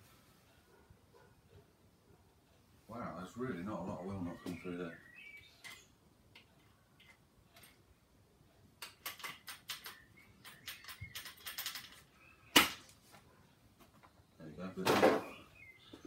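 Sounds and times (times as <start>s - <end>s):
plastic and metal parts clicking: 8.8s - 12.1s.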